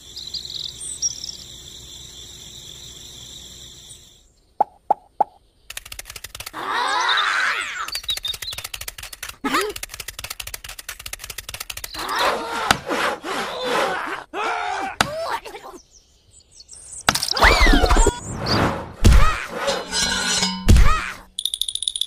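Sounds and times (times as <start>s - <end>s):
birds chirping: 0.0s - 9.3s, 15.3s - 18.7s.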